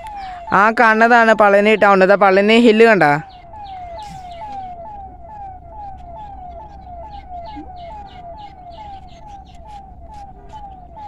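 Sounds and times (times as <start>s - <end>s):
falling whistle-like call: 3.2s - 11.0s.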